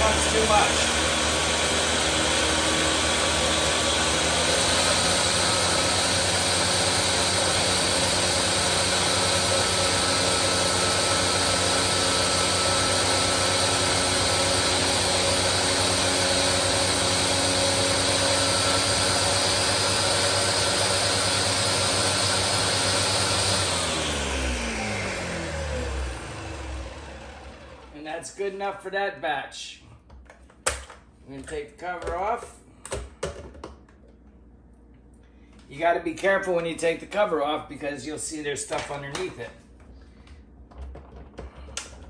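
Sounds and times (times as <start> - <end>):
blender running: 0.0 - 28.0.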